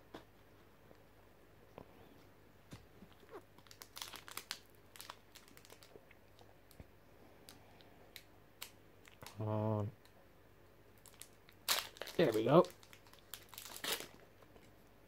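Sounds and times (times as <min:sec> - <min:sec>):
foil wrapper crinkling: 0:03.6 - 0:06.0, 0:11.0 - 0:14.3.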